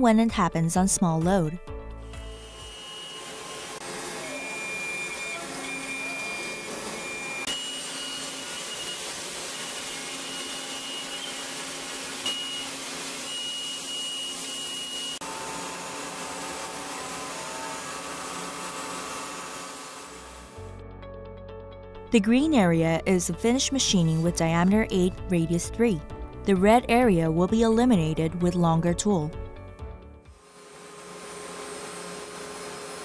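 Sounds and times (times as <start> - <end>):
high-pitched spindle cutting whine: 2.2 - 20.2.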